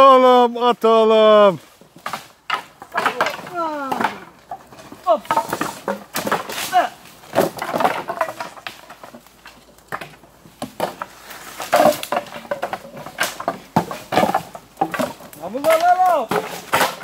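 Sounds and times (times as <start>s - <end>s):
branches cracking and knocking: 1.4s - 17.0s
axe chopping: 2.0s - 4.3s, 5.0s - 9.2s, 9.9s - 17.0s.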